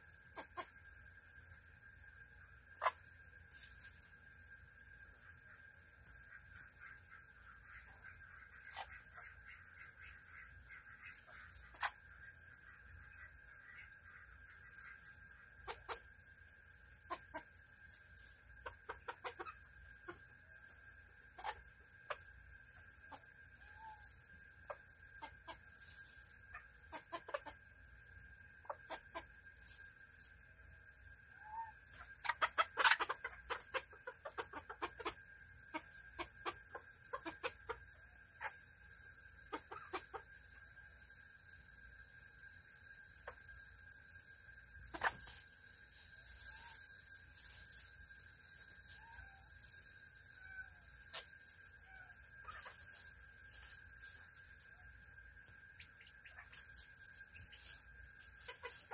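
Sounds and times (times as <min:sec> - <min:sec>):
chickens clucking: 0:00.2 - 0:00.9, 0:02.8 - 0:04.0, 0:06.3 - 0:12.3, 0:13.0 - 0:16.2, 0:16.9 - 0:27.7, 0:28.4 - 0:29.9, 0:31.4 - 0:40.5, 0:43.2 - 0:43.8, 0:44.9 - 0:48.1, 0:49.8 - 0:54.7, 0:55.8 - 0:58.9
chickens pecking at gravel: 0:17.1 - 0:20.2, 0:31.9 - 0:37.8, 0:44.9 - 0:45.4, 0:56.3 - 0:58.9.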